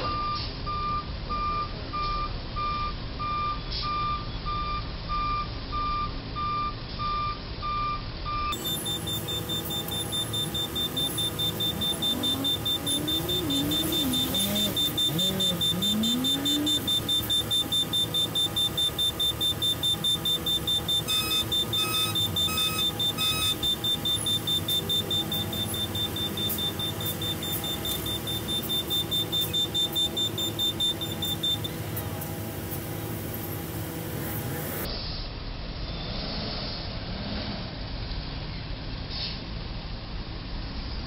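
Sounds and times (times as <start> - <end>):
rapid high-pitched electronic beeping: 8.5 - 31.8
vehicle engine running: 8.5 - 34.9.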